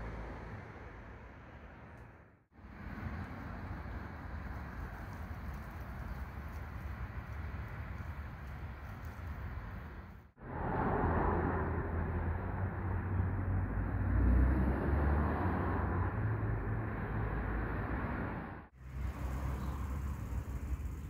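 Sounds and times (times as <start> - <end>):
low rumble: 10.4 - 13.8.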